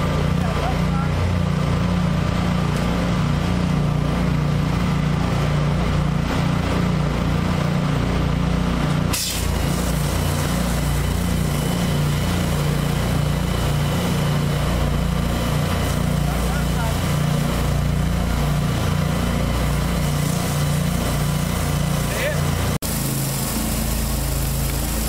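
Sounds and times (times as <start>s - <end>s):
pressure washer engine running: 0.0s - 25.0s
high-pressure water hissing: 9.1s - 25.0s.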